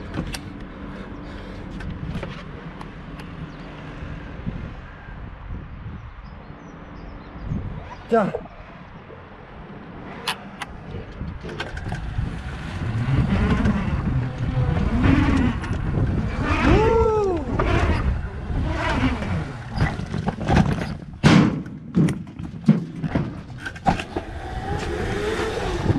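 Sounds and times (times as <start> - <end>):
sharp knocks on rough ground: 19.8 - 24.3.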